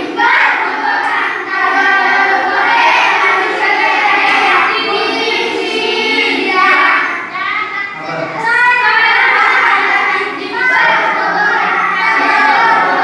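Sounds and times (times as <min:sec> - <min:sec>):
children chanting together: 0:00.0 - 0:13.0.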